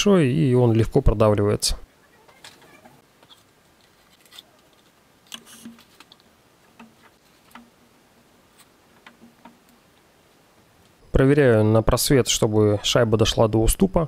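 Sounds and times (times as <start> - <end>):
light metallic knocks: 6.7 - 7.8.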